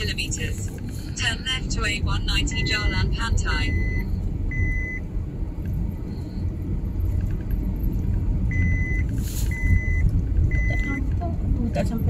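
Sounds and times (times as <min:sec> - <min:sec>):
car engine and tyre rumble: 0:00.0 - 0:12.0
short electronic beep: 0:02.5 - 0:05.0.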